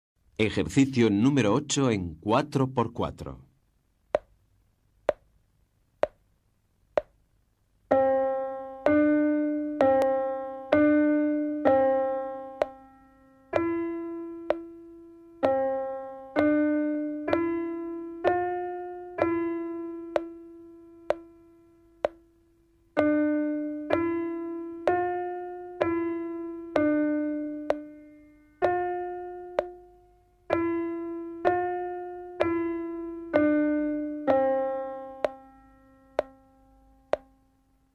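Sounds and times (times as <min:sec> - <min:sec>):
simple piano melody: 0:07.0 - 0:37.9
count-in clicks: 0:13.6 - 0:13.8, 0:14.5 - 0:14.7, 0:17.3 - 0:17.5, 0:20.2 - 0:20.4, 0:22.0 - 0:22.2, 0:27.7 - 0:27.9, 0:29.6 - 0:29.8, 0:30.5 - 0:30.7.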